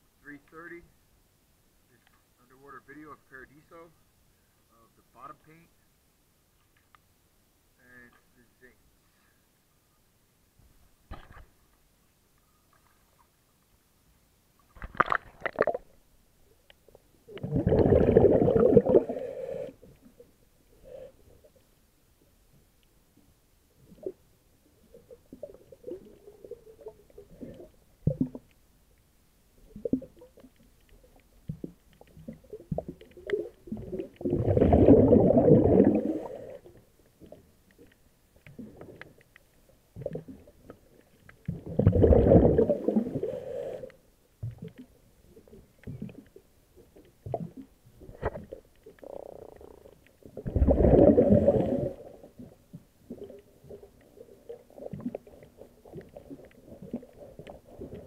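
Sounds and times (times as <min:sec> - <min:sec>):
underwater breath bubbling: 0:17.3 - 0:20.0, 0:32.5 - 0:36.7, 0:41.5 - 0:44.0, 0:49.0 - 0:58.0.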